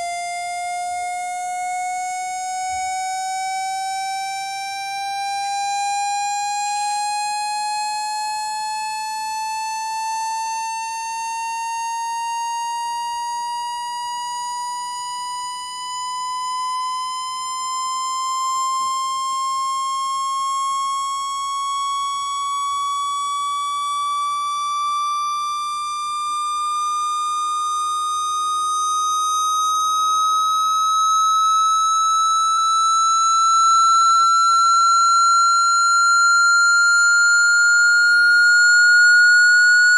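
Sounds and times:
buzzy tone rising in pitch: 0:27.4 - 0:39.9.

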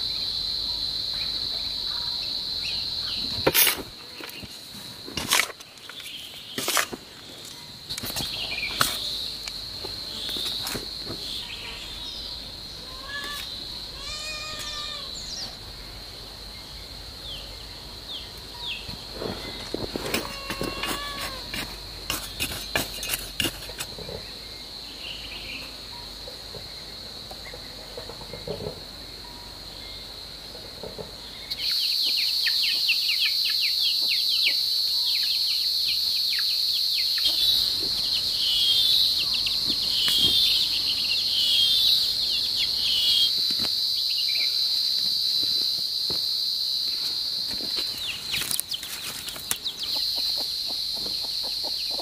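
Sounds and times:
insects droning: 0:00.0 - 0:52.0
bird chirps: 0:10.1 - 0:15.6, 0:31.4 - 0:43.4.

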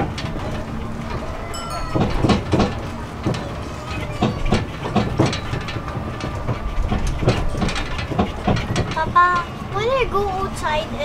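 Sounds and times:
road train rumbling: 0:00.0 - 0:11.0
knocks and rattles: 0:01.6 - 0:09.5.

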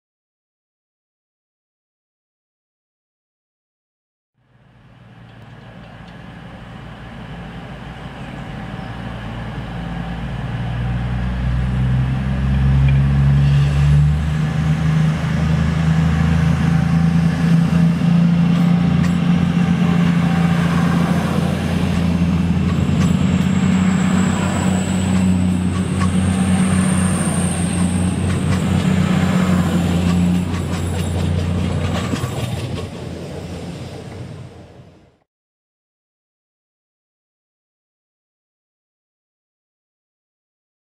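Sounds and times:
diesel train engine drone: 0:04.4 - 0:35.2.

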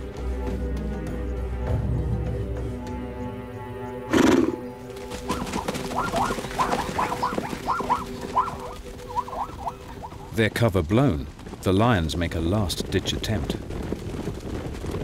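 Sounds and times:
background music: 0:00.0 - 0:11.7
zebras barking alarm calls: 0:04.1 - 0:10.4.

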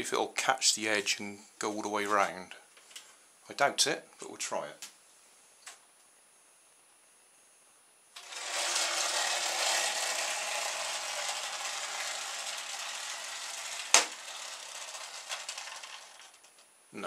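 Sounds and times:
small propeller spinning: 0:08.2 - 0:16.6.

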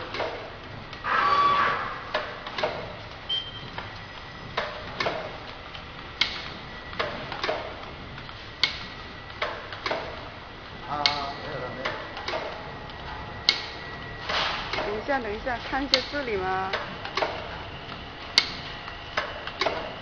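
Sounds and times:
packaging machine clicking: 0:10.9 - 0:20.0.

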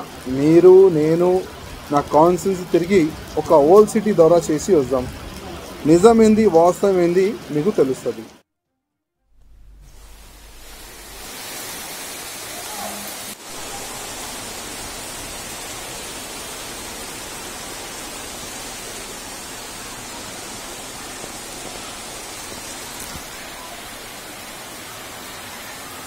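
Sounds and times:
floodwater rushing: 0:00.0 - 0:08.4, 0:09.5 - 0:26.0.

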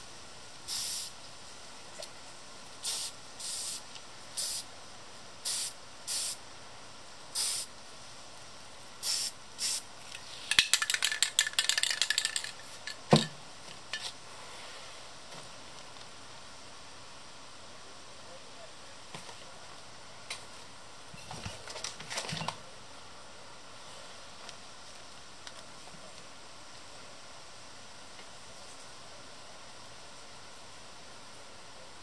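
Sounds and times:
spray paint can puffs: 0:00.7 - 0:01.2, 0:02.8 - 0:03.8, 0:04.4 - 0:04.7, 0:05.4 - 0:06.4, 0:07.3 - 0:07.7, 0:09.0 - 0:13.2.

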